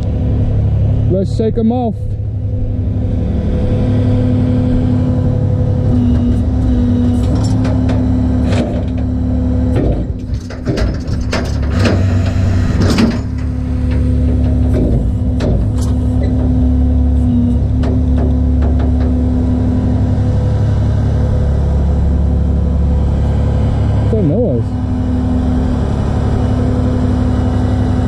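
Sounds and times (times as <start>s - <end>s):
truck engine running: 0.0s - 28.0s
knocks and rattles: 5.9s - 19.4s.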